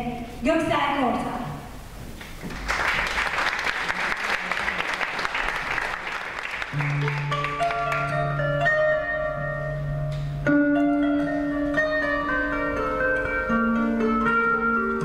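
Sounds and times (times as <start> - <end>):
audience applause: 2.5 - 8.2
plucked zither notes: 6.9 - 15.0.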